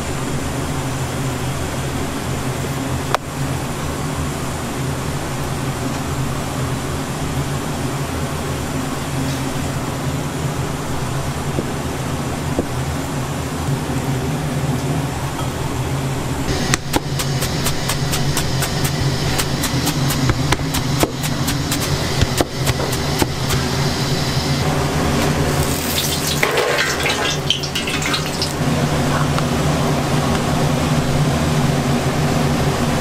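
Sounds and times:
steady fan hum: 0:00.0 - 0:33.0
water running: 0:16.5 - 0:29.2
knife chopping on cutting board: 0:16.7 - 0:23.7.

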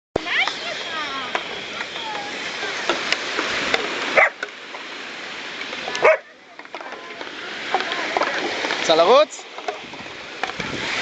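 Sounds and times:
surf washing: 0:00.2 - 0:11.0
dog barking: 0:04.2 - 0:04.4, 0:06.0 - 0:06.3.

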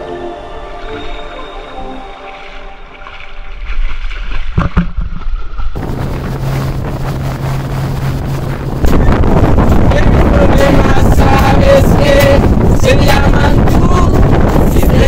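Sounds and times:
boat motor droning: 0:00.7 - 0:15.0
wind buffeting microphone: 0:03.4 - 0:15.0.

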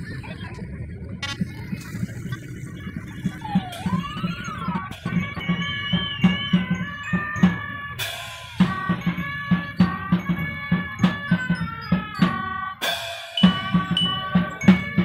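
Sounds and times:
steady bass drum beat: 0:02.5 - 0:15.0
horns playing a tune: 0:03.5 - 0:15.0
cymbal crashes: 0:07.4 - 0:11.4, 0:12.2 - 0:15.0.

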